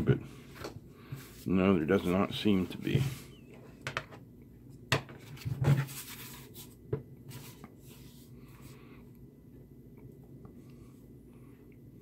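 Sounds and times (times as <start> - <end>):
soft rubbing: 5.8 - 8.9.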